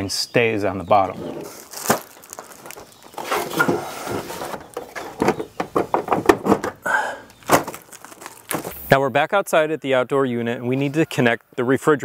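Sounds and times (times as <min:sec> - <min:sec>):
plastic wrap rustling: 0:01.3 - 0:05.3, 0:07.3 - 0:08.8
plastic knocks and clicks: 0:04.5 - 0:06.8.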